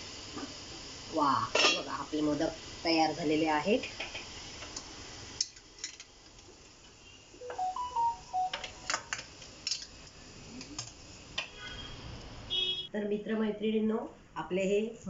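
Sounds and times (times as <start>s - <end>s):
electronic beeps at stepped pitches: 7.4s - 9.0s.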